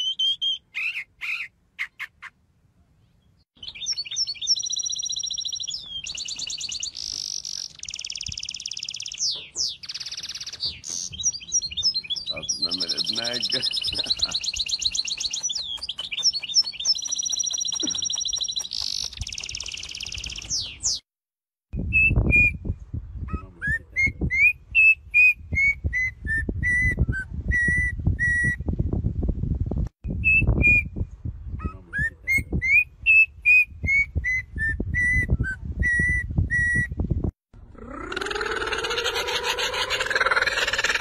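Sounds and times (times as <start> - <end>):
finch warbling song: 3.6 - 21.0
oriole whistling: 32.3 - 37.0.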